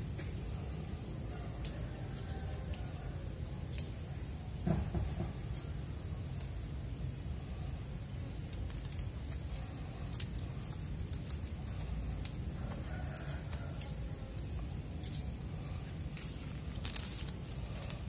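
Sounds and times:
plastic bags crinkling: 8.4 - 13.8, 15.8 - 18.0.

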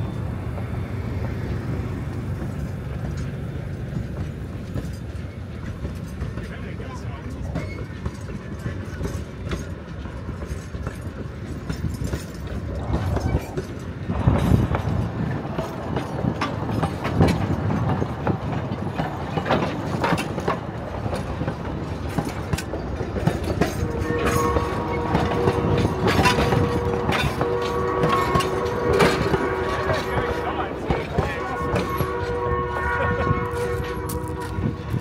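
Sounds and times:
steam train rumble: 0.0 - 35.0
train wheels clicking and knocking: 0.0 - 35.0.

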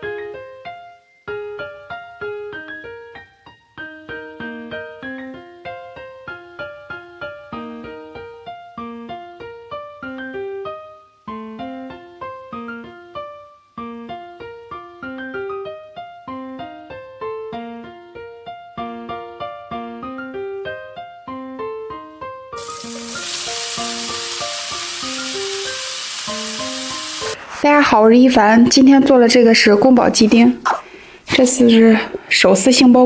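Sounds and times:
piano music: 0.0 - 27.4
food stir-frying in a wok: 22.6 - 27.4.

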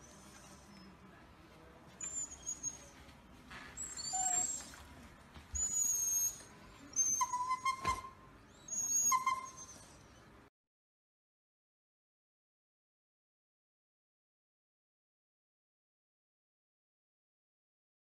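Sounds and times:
dogs whining: 2.0 - 3.0, 3.8 - 4.9, 5.5 - 10.3.

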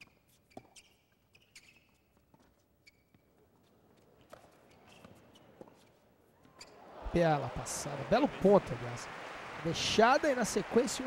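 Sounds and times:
shoe squeaks: 0.0 - 6.8.

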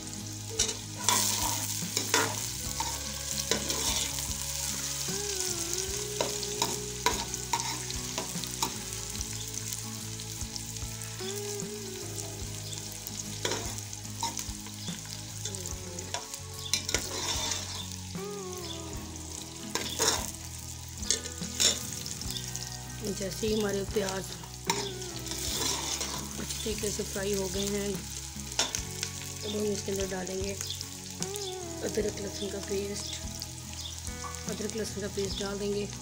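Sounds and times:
onions sizzling in hot oil: 0.0 - 36.0
ladle scraping and clinking pot: 16.8 - 17.9, 24.7 - 26.3.

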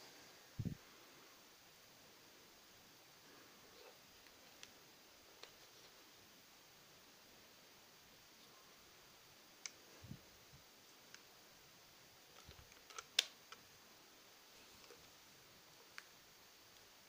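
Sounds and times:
plastic clicks: 12.3 - 13.6.

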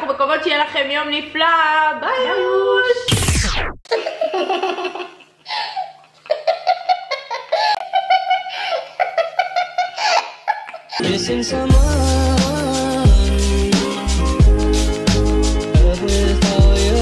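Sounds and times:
young women giggling: 3.9 - 11.0
music: 11.0 - 17.0.

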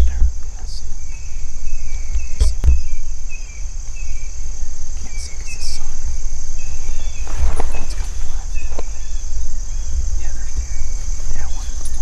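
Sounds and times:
insects buzzing: 0.0 - 12.0
low rumble: 0.0 - 12.0
footsteps through weeds: 6.6 - 12.0.

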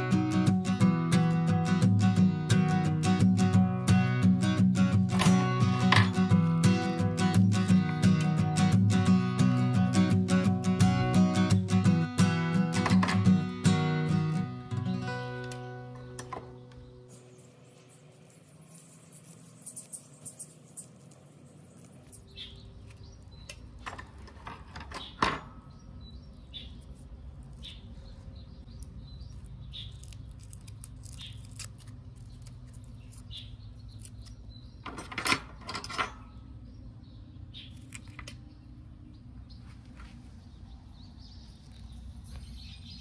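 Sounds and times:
faint bird chirps: 15.6 - 23.8
leaves snapping and clicking: 28.7 - 34.5, 37.7 - 38.5.

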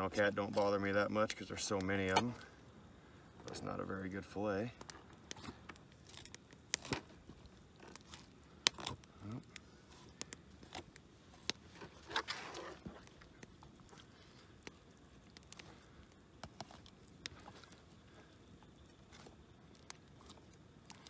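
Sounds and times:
scraping and rustling: 9.8 - 13.3.

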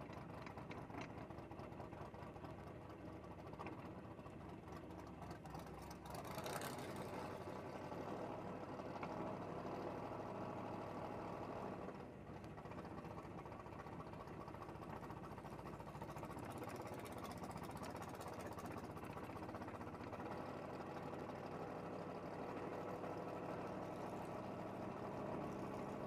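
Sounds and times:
drag car engine running: 0.0 - 26.0.

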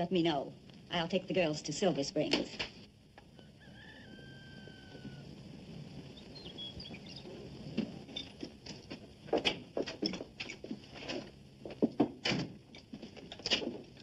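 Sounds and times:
faint high chirps: 6.1 - 7.3.

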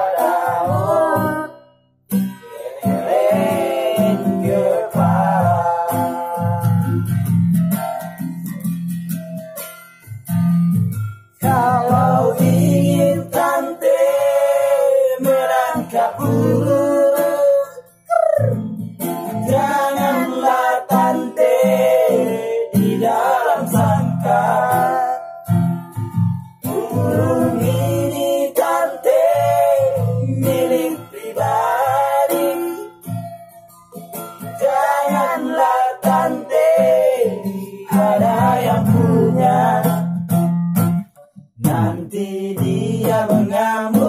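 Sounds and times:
man singing: 0.0 - 1.5, 2.4 - 8.2, 11.4 - 18.4, 19.3 - 25.4, 26.6 - 33.0, 34.5 - 40.1, 41.6 - 44.0
strummed acoustic guitar: 0.0 - 44.0.

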